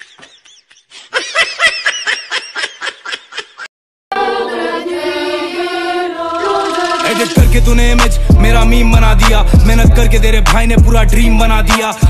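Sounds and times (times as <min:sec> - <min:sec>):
person laughing high-pitched: 0:00.0 - 0:03.7.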